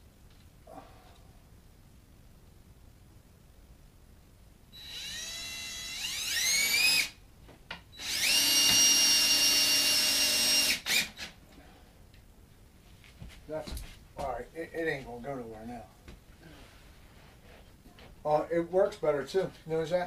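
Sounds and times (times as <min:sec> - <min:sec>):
cordless drill driving screw: 0:04.8 - 0:07.2, 0:08.0 - 0:11.3.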